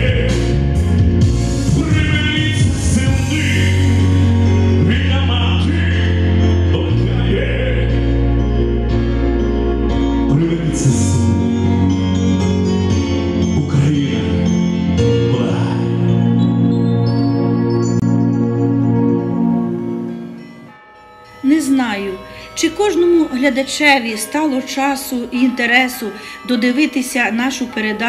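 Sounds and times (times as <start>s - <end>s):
man singing into microphone: 0.0s - 0.8s, 1.6s - 8.4s, 10.2s - 12.0s, 13.4s - 16.4s
instrumental accompaniment: 0.0s - 28.0s.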